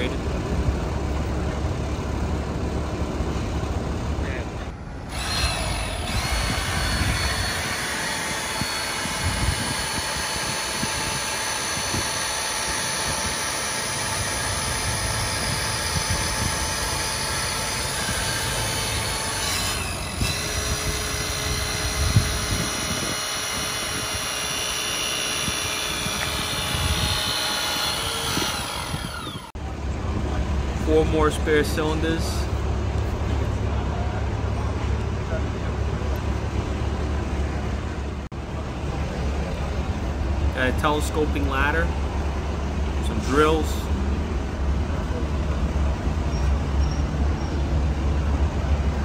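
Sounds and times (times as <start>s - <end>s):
hydraulic tool motor whine: 4.6s - 29.6s.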